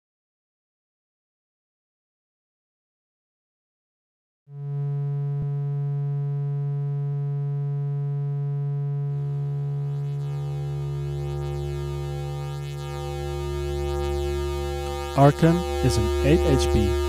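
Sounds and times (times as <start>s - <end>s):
distorted buzzy synth with rumble: 4.5s - 17.0s
low electronic synthesizer tone: 4.5s - 17.0s.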